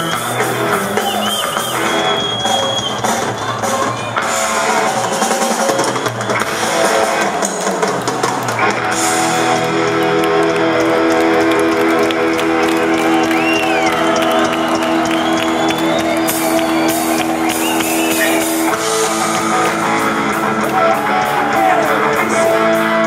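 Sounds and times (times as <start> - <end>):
drum kit with busy cymbals: 0.0 - 9.6, 15.0 - 23.0
bass guitar: 0.0 - 23.0
electric guitar: 0.0 - 23.0.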